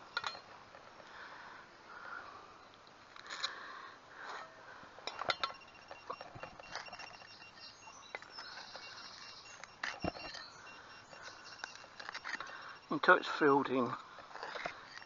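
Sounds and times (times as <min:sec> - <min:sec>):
faint high-pitched tone: 0:05.1 - 0:14.0.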